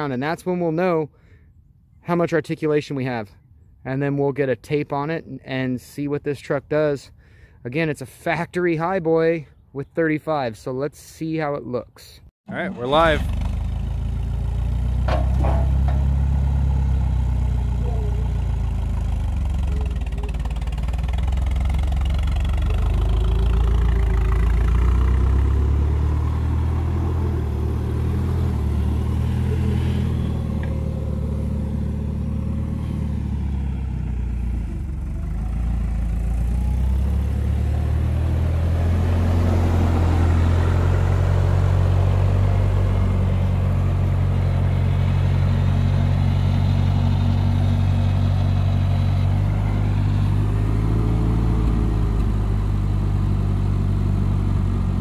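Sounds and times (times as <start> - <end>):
forklift engine running: 12.5 - 55.0.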